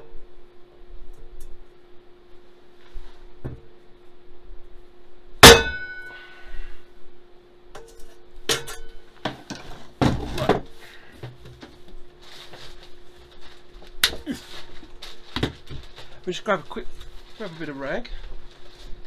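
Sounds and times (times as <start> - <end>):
metal wok clanging: 5.4 - 6.1.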